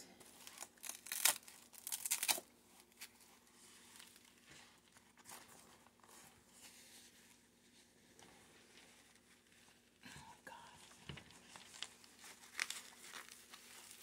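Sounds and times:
hook-and-loop straps tearing: 0:00.4 - 0:03.1.

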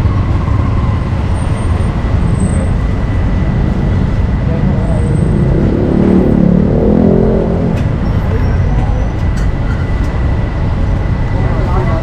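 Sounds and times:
low traffic rumble: 0:00.0 - 0:12.0
louder hum: 0:03.1 - 0:08.1.

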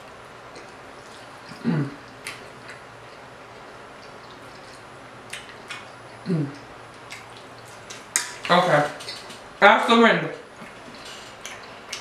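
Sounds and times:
person chewing: 0:00.4 - 0:09.5, 0:10.6 - 0:12.0
person humming: 0:01.5 - 0:02.0, 0:06.2 - 0:06.6
wet mouth clicks and smacks: 0:01.5 - 0:09.4, 0:11.4 - 0:12.0.

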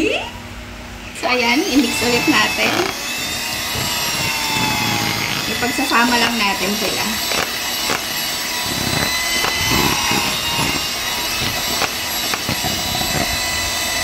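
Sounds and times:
electric hand mixer whirring: 0:01.2 - 0:14.0.

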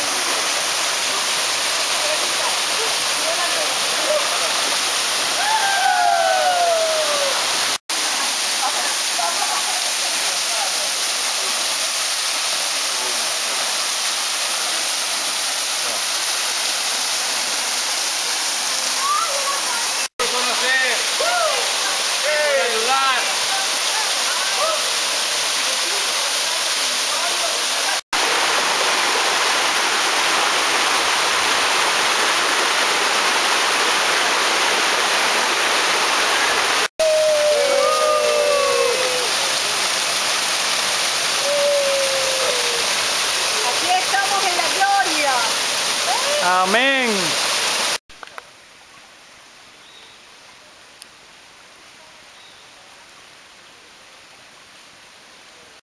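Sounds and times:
waterfall pouring into pool: 0:00.0 - 0:48.4
stream cascading over rocks: 0:00.0 - 0:55.8.

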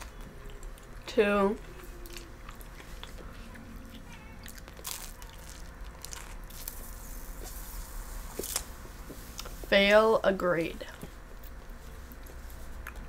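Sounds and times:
pizza chewing: 0:00.0 - 0:09.6, 0:10.9 - 0:13.0
crackly bites: 0:03.9 - 0:07.7.

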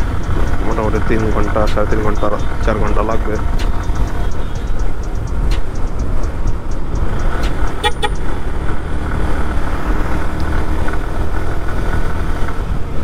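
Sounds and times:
motorcycle engine and road rumble: 0:00.0 - 0:13.0
horn toots: 0:07.4 - 0:08.3.

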